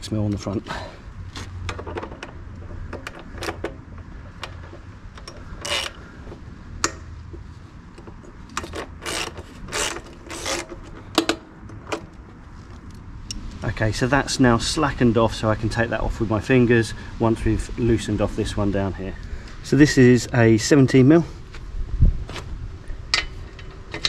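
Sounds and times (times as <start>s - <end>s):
ratchet wrench clicking: 4.4s - 6.0s, 8.5s - 11.3s.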